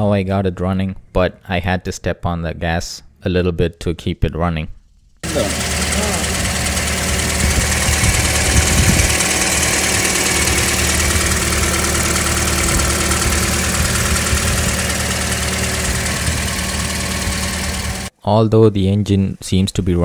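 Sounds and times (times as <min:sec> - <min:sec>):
car engine idling: 0:05.2 - 0:18.1.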